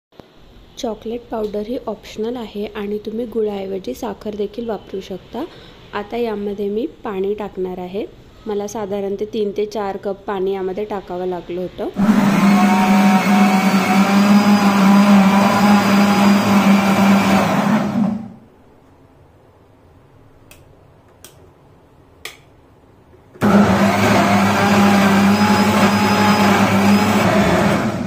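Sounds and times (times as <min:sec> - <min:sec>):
mixer grinder humming: 0:12.0 - 0:18.4, 0:23.4 - 0:28.0.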